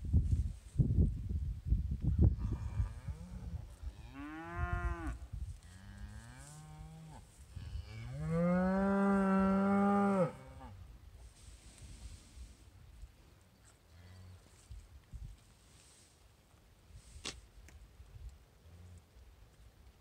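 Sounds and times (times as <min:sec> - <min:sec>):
cows mooing: 0:04.1 - 0:05.2, 0:07.8 - 0:10.7.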